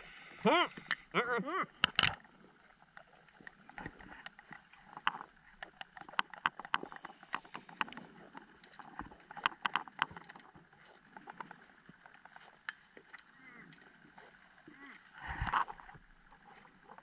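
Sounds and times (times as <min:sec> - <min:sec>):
higher-pitched hiss: 0:00.0 - 0:01.1, 0:06.8 - 0:07.9
faint steady hiss: 0:00.0 - 0:17.0
sharp clicks and pops underwater: 0:01.7 - 0:17.0.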